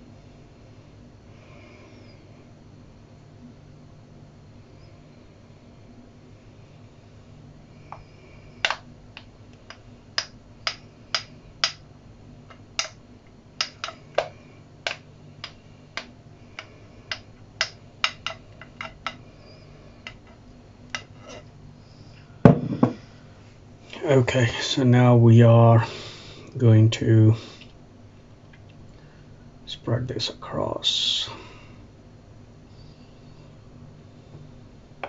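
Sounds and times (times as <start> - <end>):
spatula tapping on bowl rim: 13.6 - 19.2.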